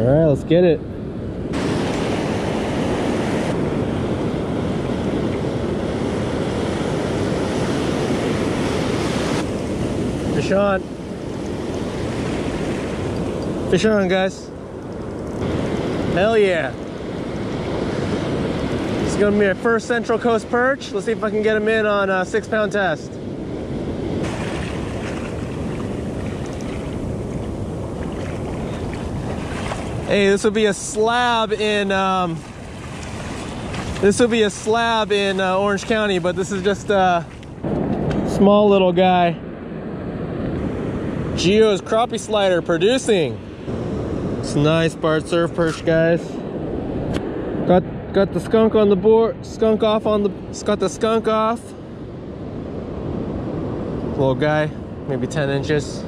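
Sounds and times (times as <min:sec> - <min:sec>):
wind rumbling on microphone: 0:00.0 - 0:56.0
ocean surf breaking: 0:00.9 - 0:56.0.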